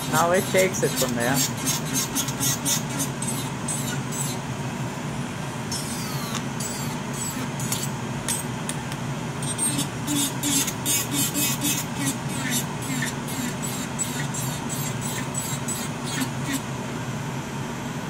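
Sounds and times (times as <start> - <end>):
nail drill grinding: 0.0 - 4.4, 5.8 - 7.9, 9.4 - 16.6
dust collector fan running: 0.0 - 18.0.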